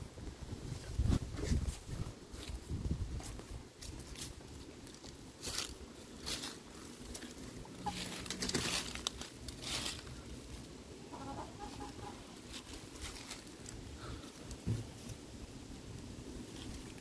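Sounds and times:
dry leaves rustling: 0.6 - 17.0
hens clucking: 7.4 - 8.4, 10.9 - 12.7.

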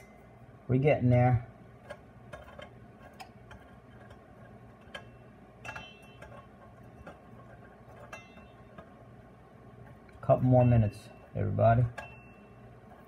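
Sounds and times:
low steady hum: 0.0 - 13.0
metal tongs clicking and tapping: 1.8 - 8.9, 11.8 - 13.0.

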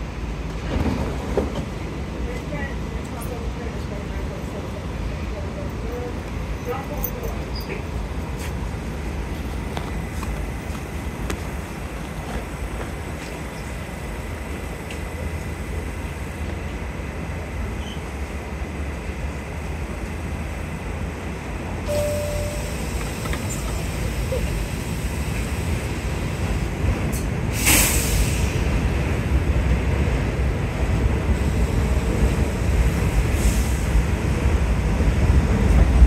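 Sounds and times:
subway train humming and rumbling: 0.0 - 36.0
hissing air burst: 27.5 - 28.7.

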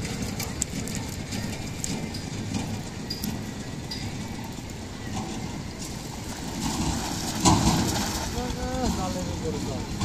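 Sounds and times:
water sloshing around wading people: 0.0 - 10.0
cast net swish and splash: 6.2 - 8.4.

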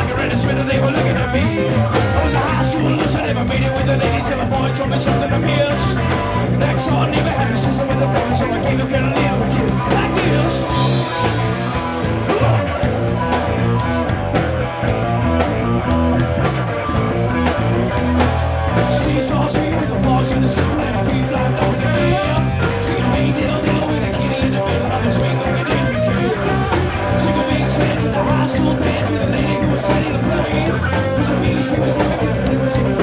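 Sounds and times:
live rock band playing: 0.0 - 33.0
low bass line: 0.0 - 33.0.

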